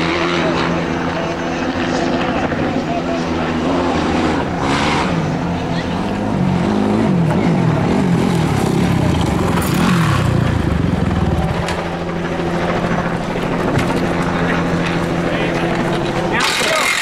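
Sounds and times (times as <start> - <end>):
dirt bike engine revving and idling: 3.4 - 11.9.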